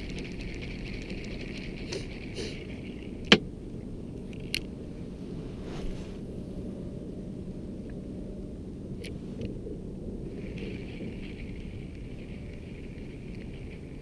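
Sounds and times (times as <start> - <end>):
fishing reel whirring: 0.0 - 3.4
low steady rumble: 0.0 - 14.0.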